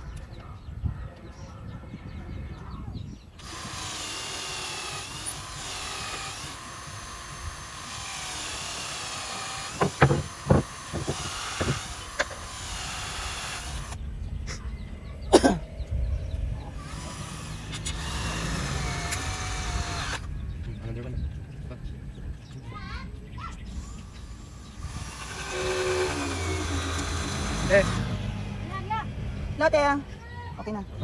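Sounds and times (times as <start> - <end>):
cordless drill driving a screw: 3.4 - 14.0, 16.8 - 20.3, 23.7 - 28.1
sharp knocks: 9.8 - 11.9.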